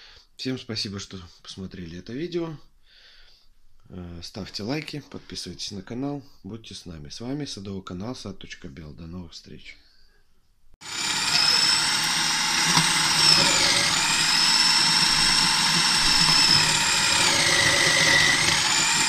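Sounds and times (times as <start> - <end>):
food processor whining: 10.8 - 19.0.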